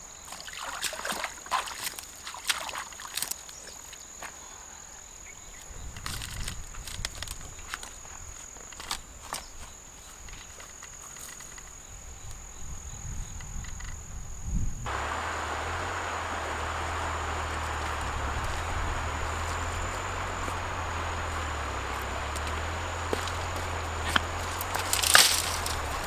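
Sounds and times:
high insect drone: 2.9 - 26.0
rushing noise with low rumble: 14.8 - 26.0
light footsteps: 14.9 - 26.0.

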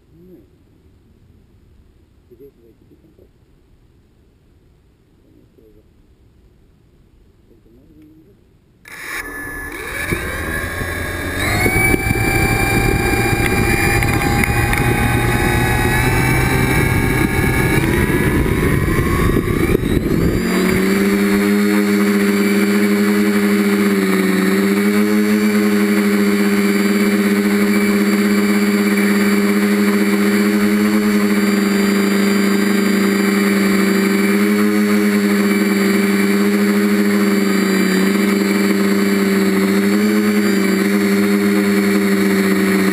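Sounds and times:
drone motors whining: 8.8 - 42.9.

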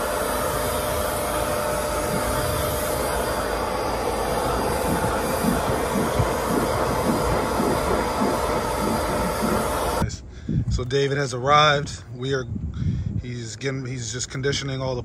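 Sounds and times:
carpet extractor motor whine: 0.0 - 10.0.

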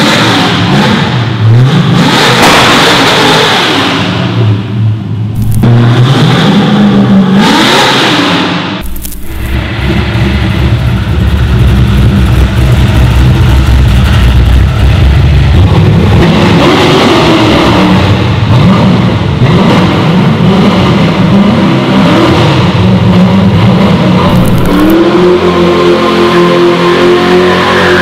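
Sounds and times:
car engine revving hard: 0.0 - 4.8, 5.4 - 28.0.

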